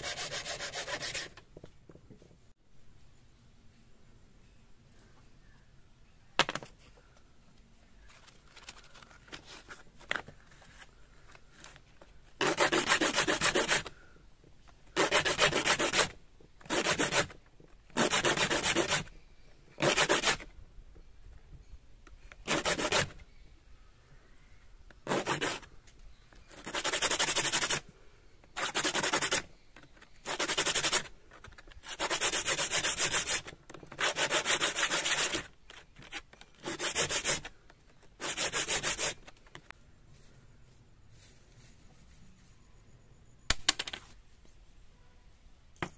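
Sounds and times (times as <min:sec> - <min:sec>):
shell scraping on sandpaper: 0:00.0 - 0:01.4, 0:08.0 - 0:13.9, 0:14.9 - 0:19.1, 0:25.0 - 0:25.7, 0:26.4 - 0:27.9, 0:28.5 - 0:39.6.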